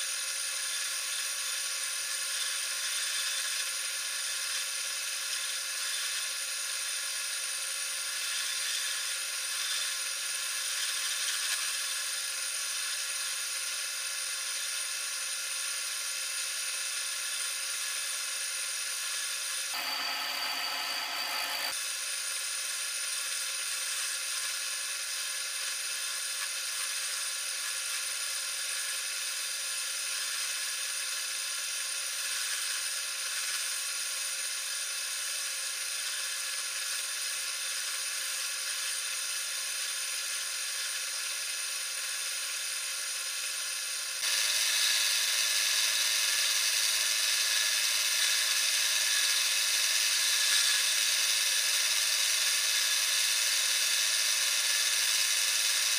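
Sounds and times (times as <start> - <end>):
wood lathe whirring: 0.1 - 21.8, 35.7 - 55.9.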